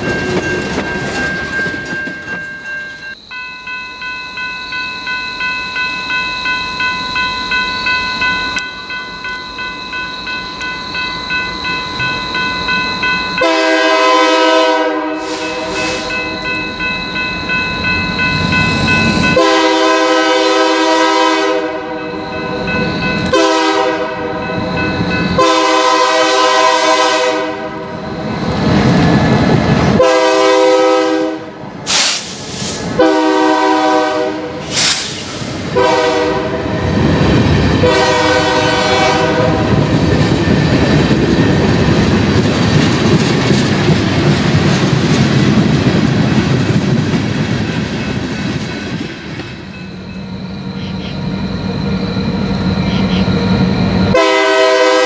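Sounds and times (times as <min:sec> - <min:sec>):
wheels clattering over rail joints: 0:00.0 - 0:03.1, 0:39.7 - 0:49.6
crossing signal bell ringing: 0:00.0 - 0:29.3, 0:35.8 - 0:44.1, 0:47.4 - 0:55.0
train rumbling past: 0:00.0 - 0:55.0
locomotive horn blasts: 0:13.4 - 0:16.2, 0:19.2 - 0:22.3, 0:23.2 - 0:24.5, 0:25.3 - 0:27.9, 0:30.0 - 0:31.6, 0:33.0 - 0:34.6, 0:35.7 - 0:36.7, 0:37.8 - 0:39.8, 0:54.1 - 0:55.0.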